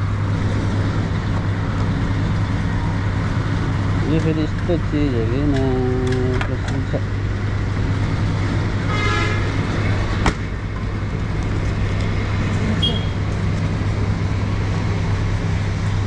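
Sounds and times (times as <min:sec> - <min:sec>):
vehicle horn toot: 0:08.9 - 0:09.5, 0:12.8 - 0:13.2.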